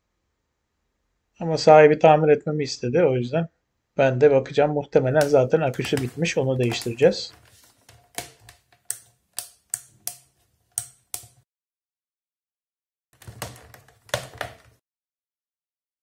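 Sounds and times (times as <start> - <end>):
handling knocks and rustle: 5.1 - 11.4, 13.2 - 14.8
plastic clicks and taps: 5.2 - 11.4, 13.2 - 14.8.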